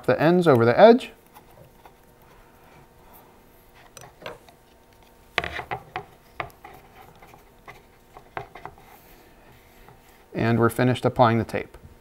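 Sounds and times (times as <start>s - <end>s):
soft rubbing of tape: 1.2s - 10.4s
tape crackling and tapping: 3.8s - 8.9s.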